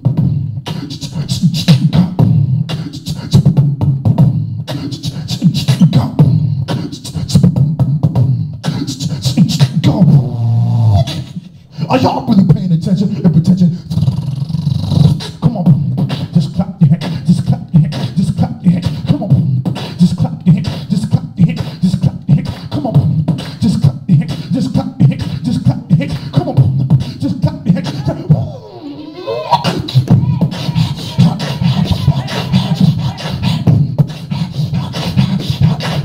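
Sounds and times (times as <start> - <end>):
beatboxing into a microphone: 0.0 - 36.0.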